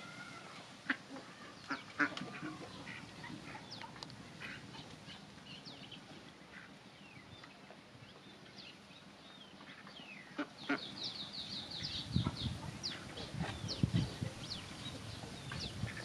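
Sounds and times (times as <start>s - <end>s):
ducks quacking: 0.3s - 5.2s, 6.4s - 6.8s, 9.6s - 11.1s, 11.8s - 16.0s.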